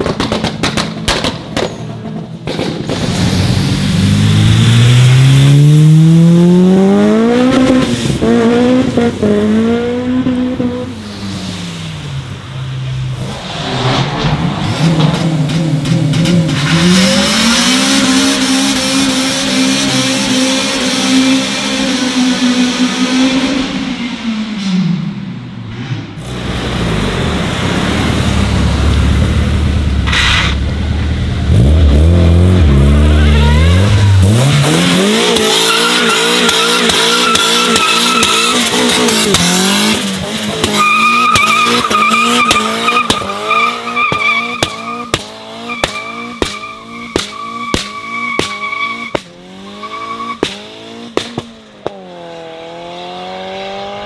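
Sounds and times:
car engine revving: 0.0s - 54.0s
tyres squealing: 35.2s - 38.9s, 40.7s - 49.2s.

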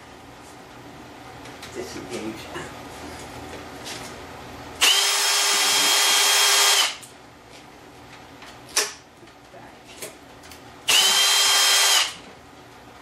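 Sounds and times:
cordless drill whining: 4.8s - 7.0s, 10.9s - 12.2s.

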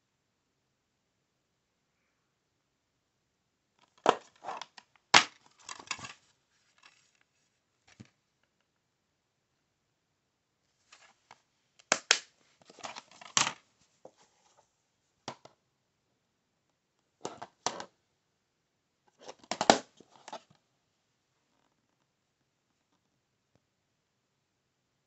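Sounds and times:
plastic cases clicking and clattering: 3.8s - 6.2s, 11.8s - 13.6s, 17.2s - 17.9s, 19.2s - 20.5s.

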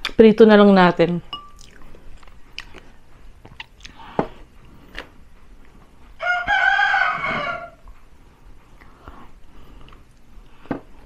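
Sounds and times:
rooster crowing: 6.2s - 7.8s.

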